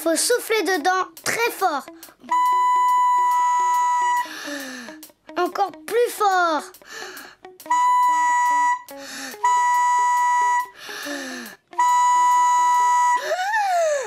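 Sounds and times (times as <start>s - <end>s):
trumpet blaring notes: 2.3s - 4.3s, 7.7s - 10.8s, 11.7s - 13.3s
rising and falling squeal: 2.4s - 4.3s
breathy noise: 4.2s - 5.1s, 6.8s - 7.5s, 8.9s - 9.4s, 10.7s - 11.7s.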